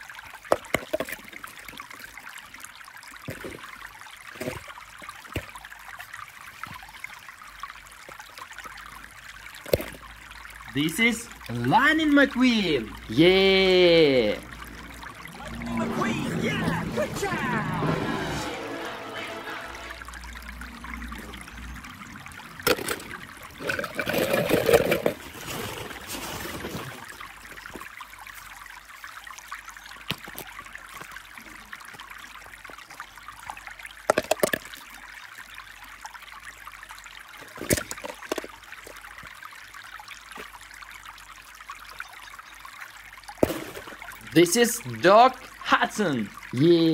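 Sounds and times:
trickling water-like hiss: 0:00.0 - 0:46.9
plastic toys clicking and clattering: 0:22.7 - 0:25.2.

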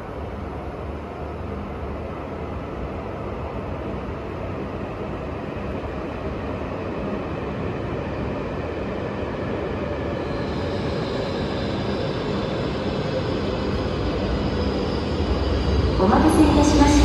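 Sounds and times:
train rumble approaching: 0:10.0 - 0:17.0.

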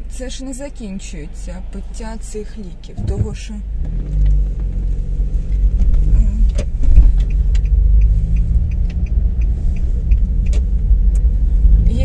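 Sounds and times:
car engine and road rumble: 0:00.0 - 0:12.0
light regular ticks: 0:06.4 - 0:12.0.

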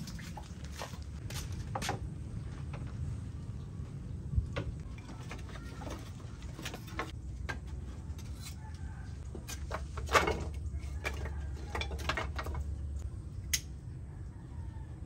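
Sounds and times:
firewood knocking and clattering: 0:04.4 - 0:08.4, 0:09.2 - 0:13.0.

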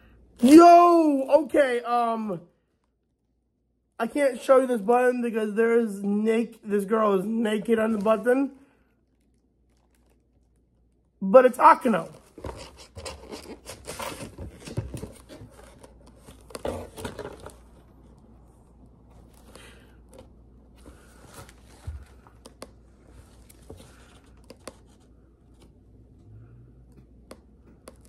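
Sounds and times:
paper and plastic wrapping rustling: 0:07.2 - 0:11.1, 0:11.8 - 0:18.2.

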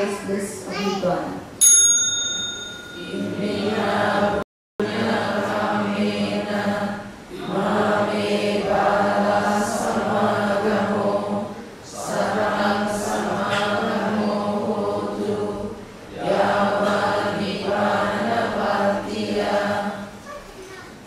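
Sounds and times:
congregation chanting in unison: 0:03.0 - 0:20.2.

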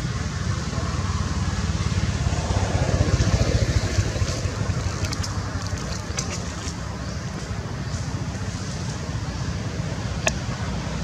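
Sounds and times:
wind buffeting microphone: 0:01.4 - 0:08.3.

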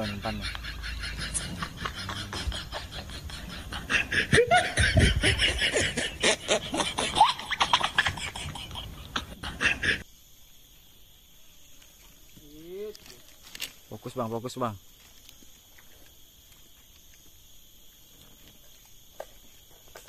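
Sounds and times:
people laughing: 0:00.0 - 0:10.0.

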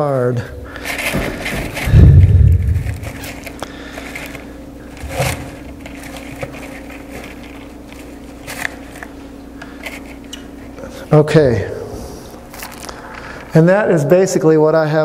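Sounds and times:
steady low hum: 0:00.0 - 0:15.0
plastic insert crunching into pebbles: 0:00.8 - 0:08.8.

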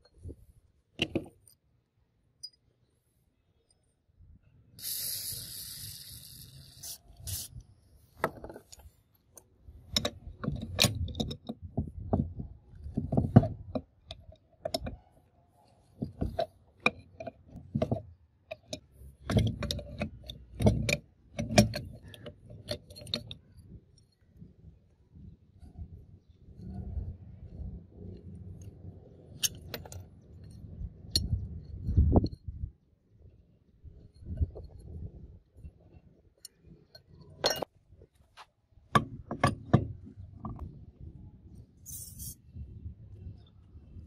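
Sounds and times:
metal clanks and knocks: 0:38.9 - 0:40.7.

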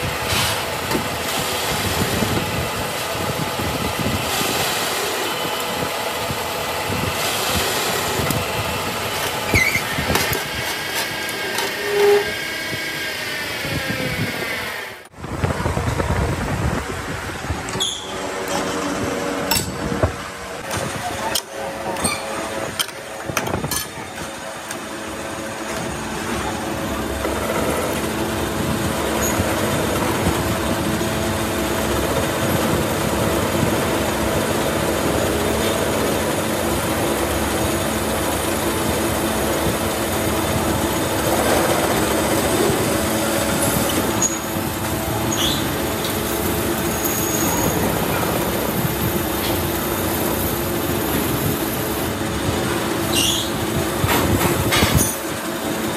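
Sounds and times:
metal lathe cutting steel: 0:00.6 - 0:15.1, 0:17.8 - 0:53.8
lathe hum: 0:00.7 - 0:15.2.

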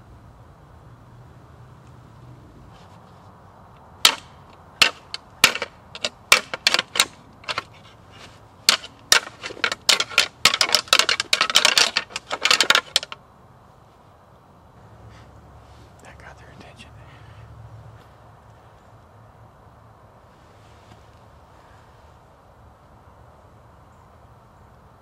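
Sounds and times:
hard objects clacking: 0:04.0 - 0:13.2.

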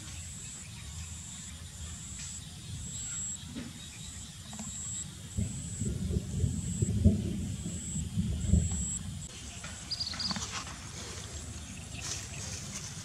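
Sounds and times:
insect trilling: 0:00.0 - 0:09.3
low steady rumble: 0:00.8 - 0:09.4.

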